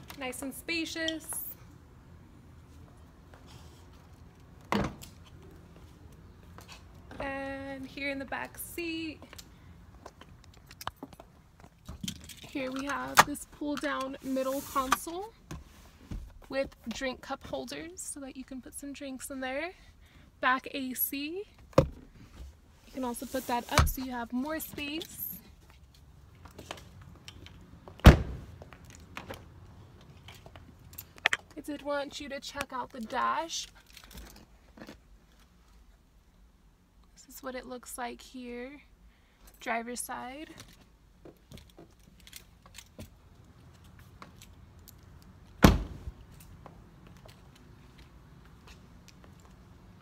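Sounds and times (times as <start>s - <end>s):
car door thunk: 28.0s - 28.4s.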